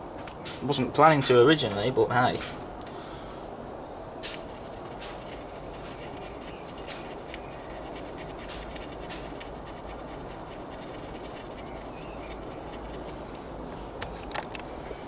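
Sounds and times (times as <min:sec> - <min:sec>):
steady background hiss: 0:00.0 - 0:15.0
pointed tool scratching metal: 0:04.2 - 0:13.2.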